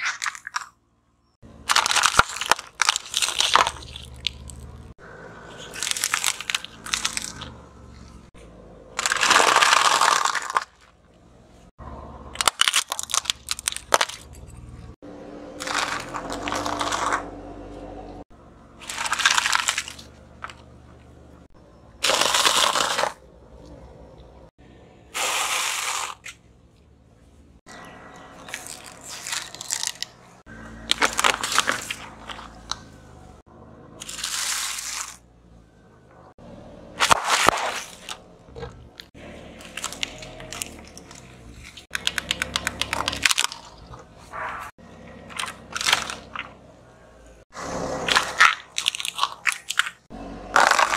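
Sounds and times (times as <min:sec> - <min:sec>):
tyre crushing dry pasta: 0:00.0 - 0:00.8, 0:01.6 - 0:04.8, 0:05.5 - 0:08.2, 0:09.0 - 0:11.0, 0:12.3 - 0:14.3, 0:15.6 - 0:17.4, 0:18.8 - 0:20.9, 0:22.0 - 0:23.2, 0:28.4 - 0:30.2, 0:30.8 - 0:32.9, 0:34.0 - 0:35.2, 0:37.0 - 0:44.7, 0:45.3 - 0:46.6, 0:48.0 - 0:50.9.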